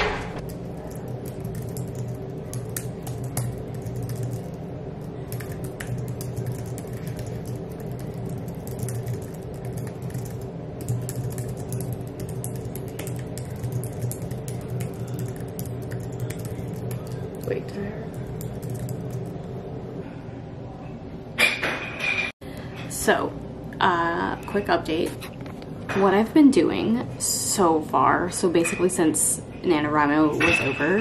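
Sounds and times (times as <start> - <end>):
steady low hum: 0.0 - 31.0
laptop keyboard typing: 0.4 - 19.4.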